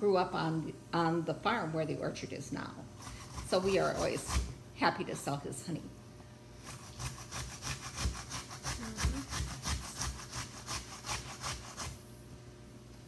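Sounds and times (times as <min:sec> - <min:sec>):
apple grated on metal grater: 0:03.0 - 0:04.6, 0:06.6 - 0:12.1.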